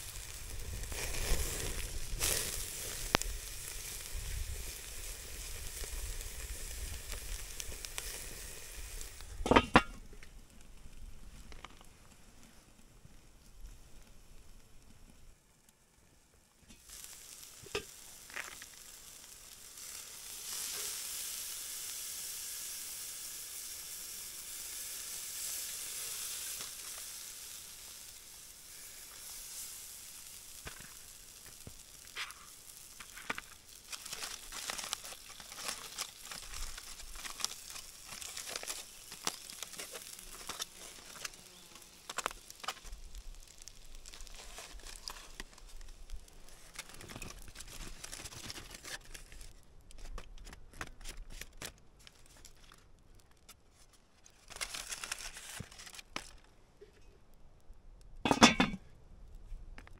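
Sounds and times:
steak sizzling on grill: 0.0 - 9.9, 16.8 - 47.7
aluminium foil crinkling: 0.0 - 10.2, 16.8 - 56.6.

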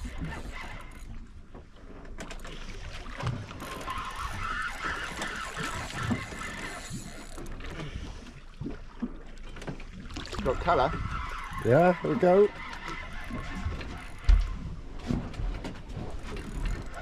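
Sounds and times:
fishing reel clicking whirr: 0.0 - 1.1, 3.5 - 7.6
sea noise: 0.0 - 17.0
wind: 0.0 - 17.0.

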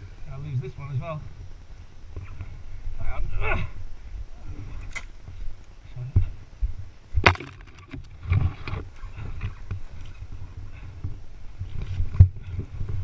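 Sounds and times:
dirt bike bumping and scraping: 7.1 - 13.0.

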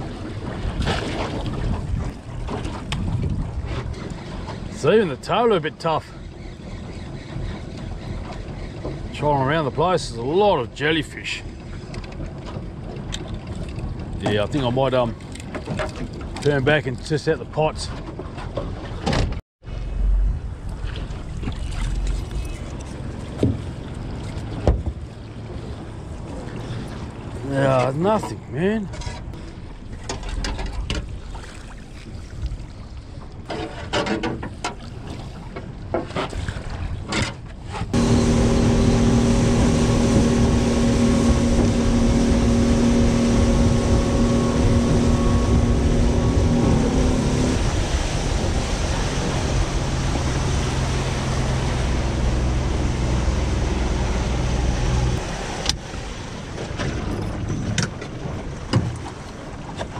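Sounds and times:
outboard motor running: 0.0 - 17.0, 19.8 - 33.6, 34.4 - 59.9
water slapping boat hull: 0.0 - 19.4, 20.4 - 59.9
wind: 0.0 - 59.9
rushing water: 19.8 - 33.5, 37.9 - 59.9.

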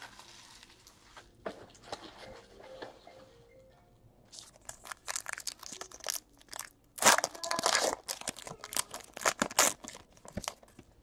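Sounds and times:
foil wrapper crinkling: 0.0 - 1.1, 4.3 - 11.0.

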